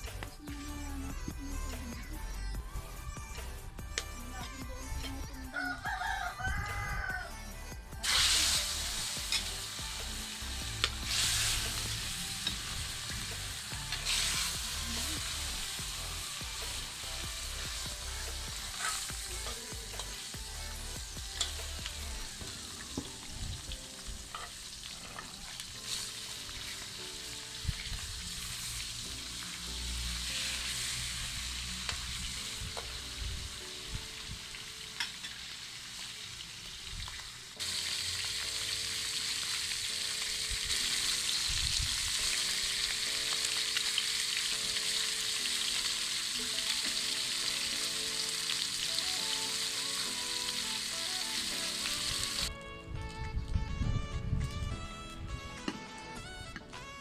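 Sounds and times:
metal spatula scraping wok: 8.0 - 9.8, 18.6 - 20.2
fish sizzling in hot oil: 8.0 - 52.5.

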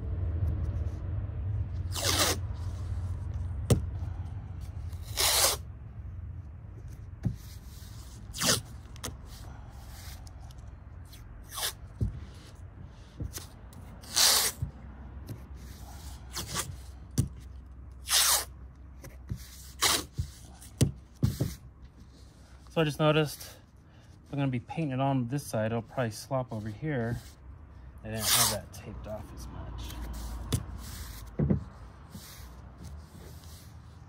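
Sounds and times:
masking tape ripping: 1.8 - 2.8, 4.9 - 5.6, 8.1 - 9.1, 11.1 - 11.8, 13.3 - 14.7, 18.0 - 18.5, 19.6 - 20.4, 28.2 - 28.6.

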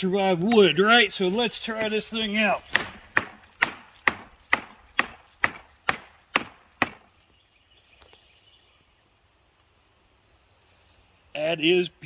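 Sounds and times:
knife chopping into dry wood: 0.4 - 7.2.

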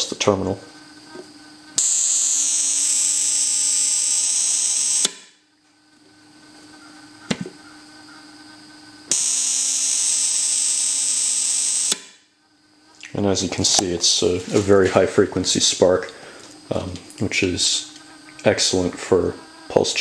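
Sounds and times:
high-pitched coil buzzing: 0.0 - 20.0
single click: 11.9 - 12.2.

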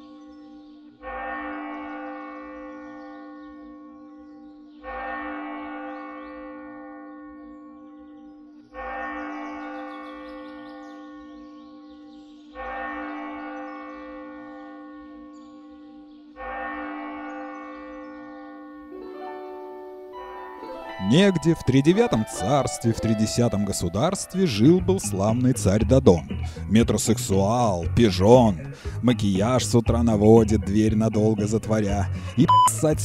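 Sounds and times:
large bell tolling: 18.9 - 25.4.

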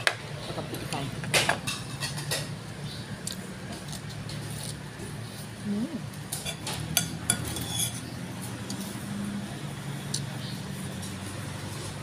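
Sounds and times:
utensils clinking on ceramic bowl: 6.3 - 8.1.

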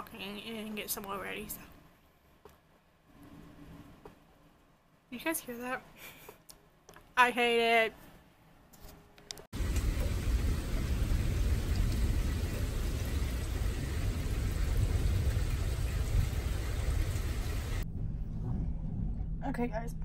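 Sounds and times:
rain on concrete and lawn: 9.6 - 17.8
low rumble: 9.6 - 20.0.

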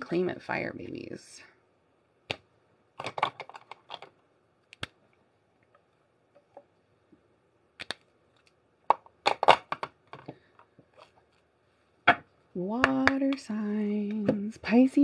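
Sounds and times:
clicks and taps of handled objects: 7.8 - 11.2.

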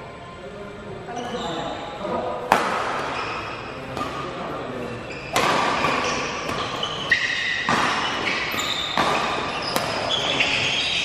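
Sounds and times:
shoes squeaking on court: 1.2 - 2.0, 2.8 - 11.0
rackets hitting shuttlecock: 2.4 - 11.0.

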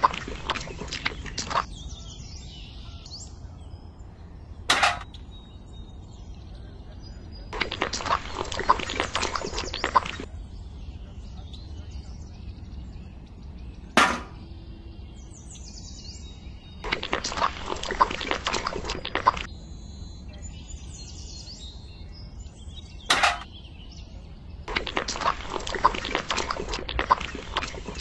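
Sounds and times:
birds chirping: 0.0 - 28.0
sharp knock: 14.0 - 14.4.

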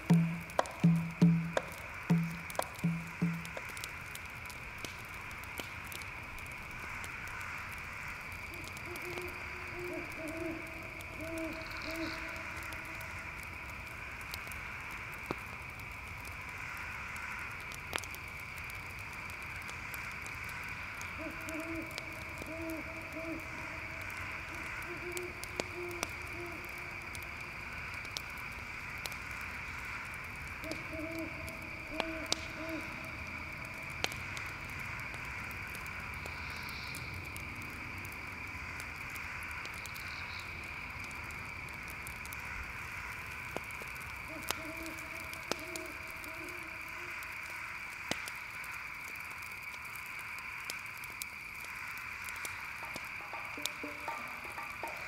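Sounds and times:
campfire crackling: 0.0 - 55.0
crickets chirping: 0.0 - 55.0
owl hooting: 8.5 - 13.1, 21.1 - 27.0, 30.6 - 33.1, 44.3 - 47.2.

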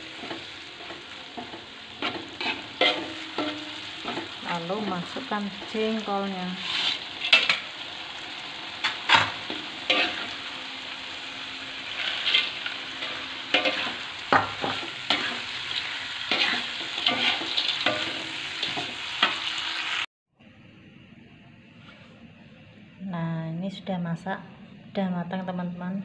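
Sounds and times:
metal spatula scraping a pan: 0.0 - 7.8, 8.4 - 10.6, 11.8 - 19.6
food sizzling in a wok: 0.0 - 20.1.

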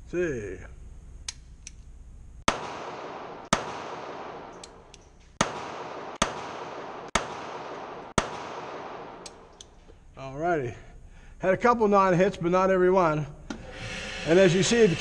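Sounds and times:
pistol shots echoing: 2.5 - 9.5.

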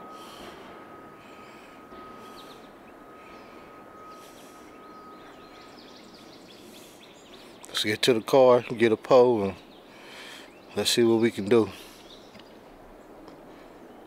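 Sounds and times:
thin steady high tone: 0.0 - 9.8
bird chirps: 0.0 - 14.0.

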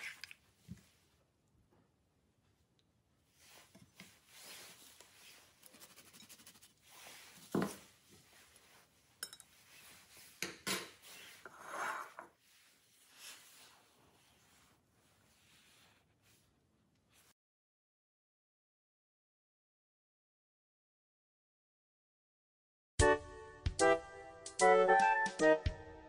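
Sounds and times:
kitchenware clinking and scraping: 9.2 - 12.4
bowl scraping on counter: 11.0 - 12.4.

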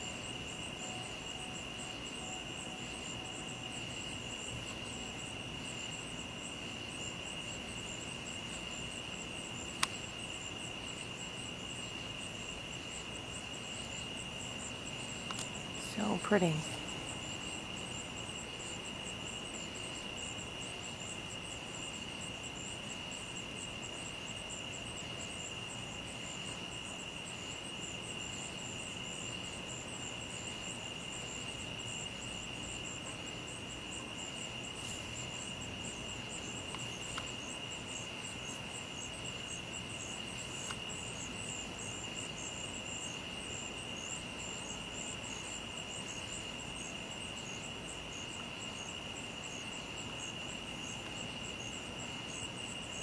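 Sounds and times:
crickets trilling: 0.0 - 53.0
insects pulsing chirring: 0.0 - 53.0
faint ticks: 9.7 - 10.1, 15.2 - 15.6, 36.6 - 37.4, 40.3 - 40.9.

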